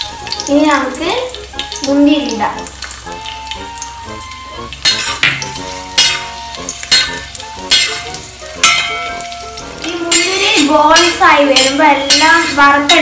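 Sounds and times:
nuts sizzling in hot ghee: 0.0 - 13.0
steel spoon scraping a pan: 4.8 - 13.0.

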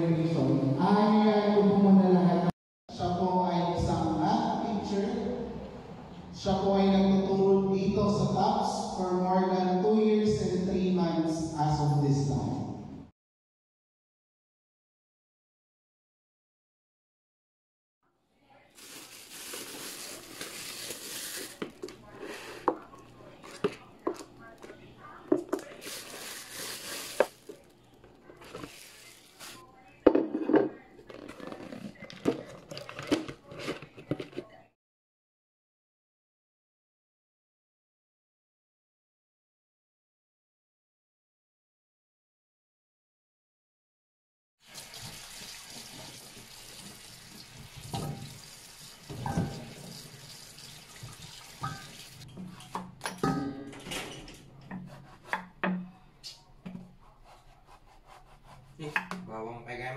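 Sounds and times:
plastic bag rustling: 18.7 - 24.7, 25.5 - 29.8
tap water running into bowl: 44.6 - 52.9
knocks against metal bowl: 52.7 - 53.8.

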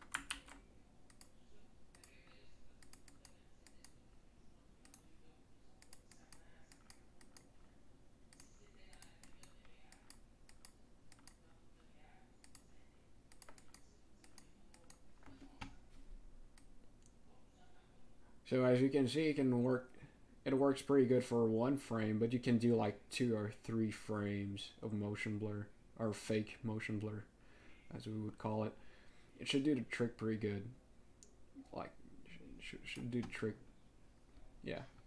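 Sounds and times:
computer keyboard and mouse clicking: 0.0 - 4.0, 5.8 - 7.7, 8.3 - 11.4, 12.4 - 12.7, 13.3 - 15.8.

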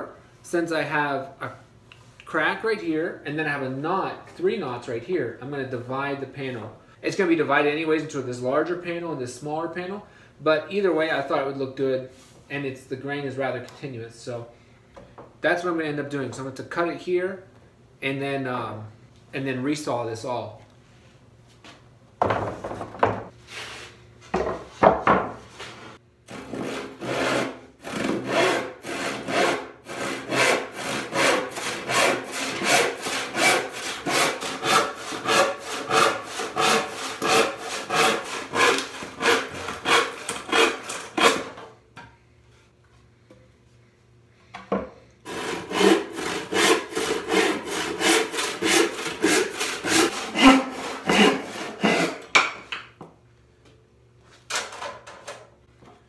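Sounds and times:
hand saw cutting wood: 26.3 - 41.6, 45.3 - 52.4.

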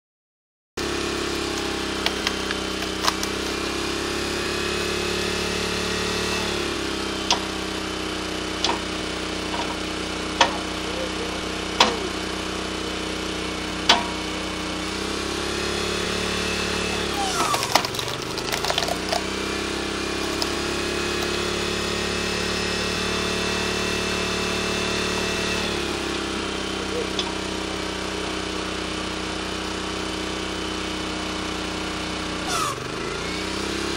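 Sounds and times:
small engine running: 0.8 - 33.9
wood cracking and splitting: 1.4 - 3.6, 17.0 - 21.8.

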